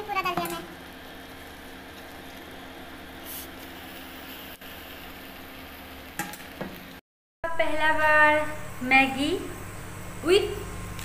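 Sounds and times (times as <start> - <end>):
omelette sizzling in a frying pan: 0.0 - 7.0.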